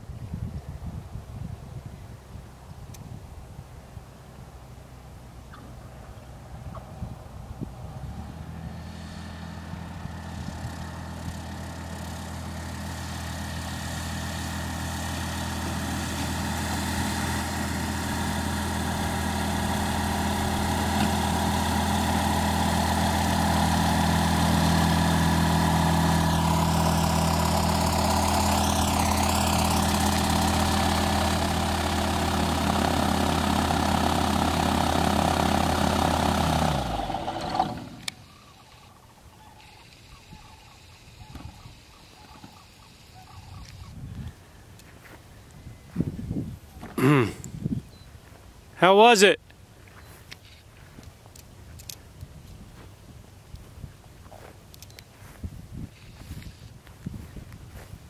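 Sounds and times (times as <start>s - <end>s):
airplane propeller engine running: 4.6s - 44.3s.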